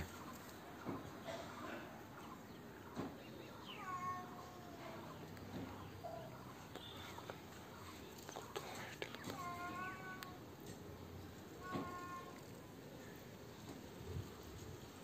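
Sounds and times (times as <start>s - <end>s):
cat meowing: 3.7s - 5.0s, 11.6s - 12.4s.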